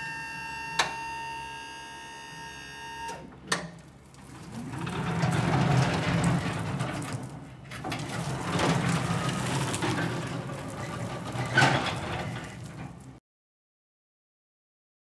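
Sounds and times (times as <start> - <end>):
truck tyres on asphalt: 3.8 - 13.2.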